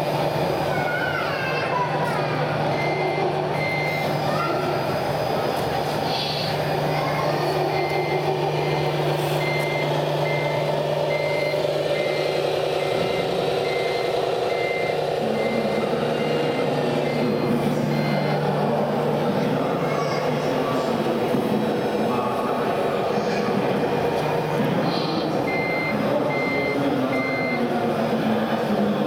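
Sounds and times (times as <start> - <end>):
diesel engine sound: 0.0 - 29.0
reversing beeper: 7.4 - 19.2, 25.1 - 27.8.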